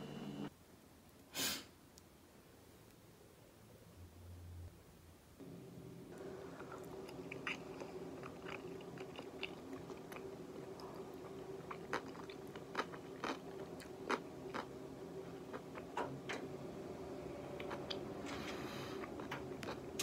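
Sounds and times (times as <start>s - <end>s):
low hum: 3.6s - 20.0s
crunchy chewing: 6.5s - 14.8s.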